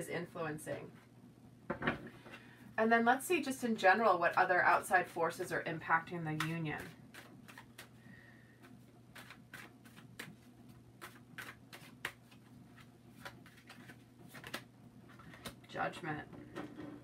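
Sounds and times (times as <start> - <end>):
cards being shuffled: 6.3 - 8.0, 8.6 - 15.7.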